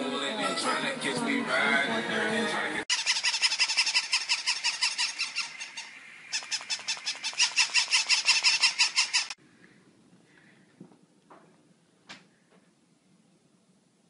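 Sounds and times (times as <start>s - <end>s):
toy puppies yapping: 2.9s - 9.4s.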